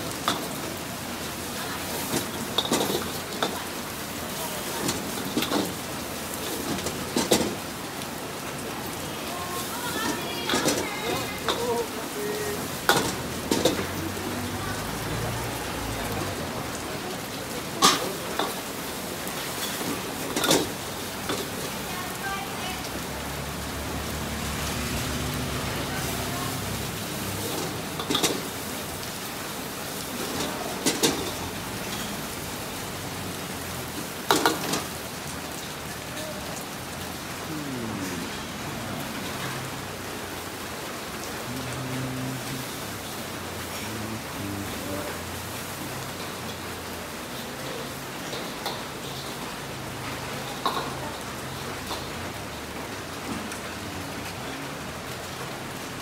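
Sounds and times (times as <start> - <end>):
stir-fry sizzling in a wok: 0.0 - 37.5, 42.4 - 56.0
rain hissing: 0.0 - 56.0
metal utensils clanking on a wok: 1.9 - 3.7, 10.0 - 11.6, 12.8 - 14.0, 17.7 - 18.8, 19.4 - 21.7, 27.4 - 28.6, 30.2 - 32.3, 34.3 - 34.9.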